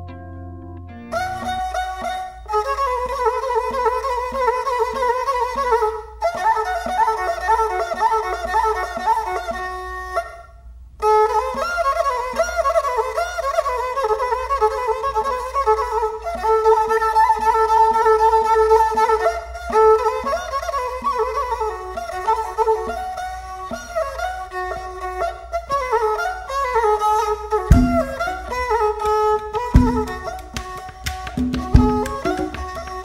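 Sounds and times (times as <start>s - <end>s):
instrumental music with beat: 0.0s - 3.4s, 27.3s - 33.0s.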